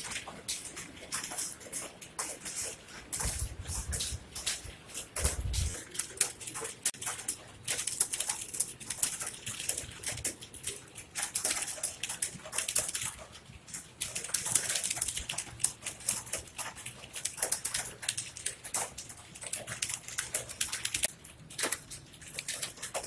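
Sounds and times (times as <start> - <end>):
fast keyboard typing: 0.0 - 23.0.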